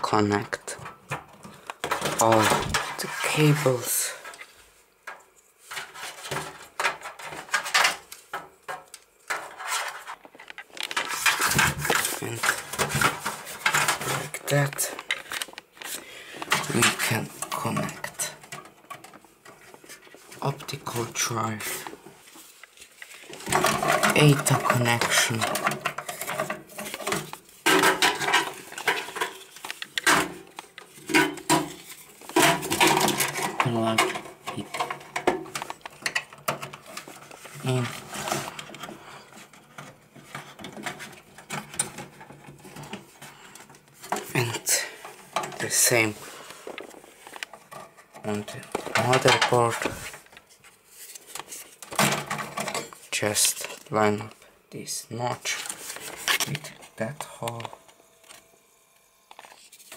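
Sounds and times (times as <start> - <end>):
computer parts clattering: 0.0 - 22.1, 23.2 - 50.5, 51.3 - 58.0
plastic connectors clicking and rattling: 5.0 - 19.9, 23.0 - 50.4.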